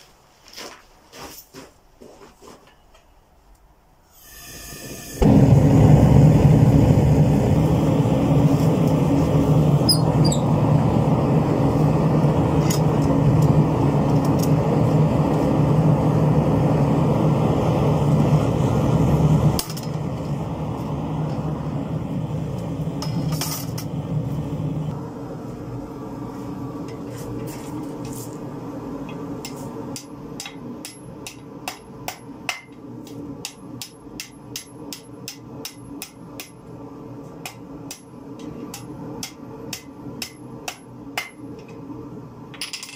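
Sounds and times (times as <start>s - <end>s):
gas forge burner rushing: 4.2s - 42.6s
hammer striking steel on anvil: 29.4s - 32.8s, 33.4s - 36.6s, 37.4s - 41.4s.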